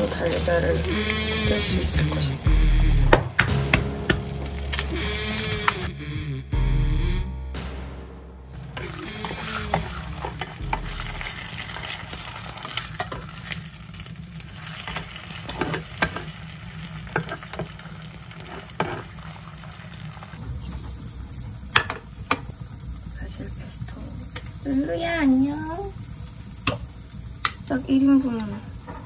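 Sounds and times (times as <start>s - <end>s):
spatula scraping against a pan: 0.0s - 2.4s, 8.7s - 13.8s, 17.1s - 19.5s
egg and ham sizzling in a pan: 0.0s - 5.9s, 8.7s - 29.0s.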